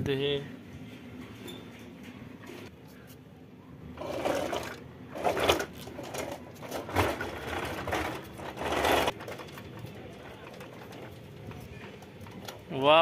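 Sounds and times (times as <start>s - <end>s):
toy truck wheels rolling on concrete: 4.0s - 13.0s.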